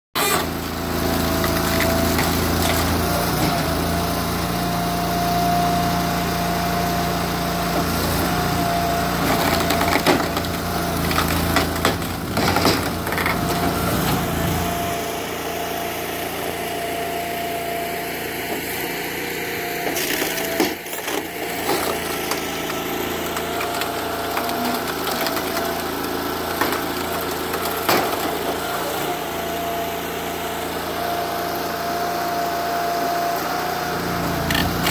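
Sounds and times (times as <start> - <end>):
log splitter engine running: 0.2 - 34.9
wood splitting cracks: 9.3 - 13.6, 34.5 - 34.9.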